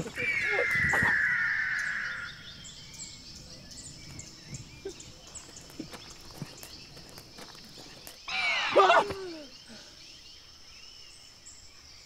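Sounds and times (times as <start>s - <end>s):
faint bird chirps: 0.0s - 12.0s
high insect drone: 0.0s - 12.0s
footsteps on dirt path: 3.9s - 8.3s.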